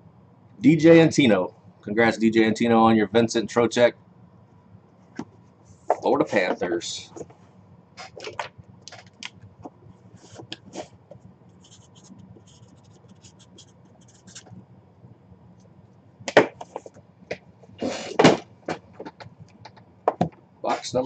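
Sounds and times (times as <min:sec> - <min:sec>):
cardboard boxes scraping: 0:17.8 - 0:18.4.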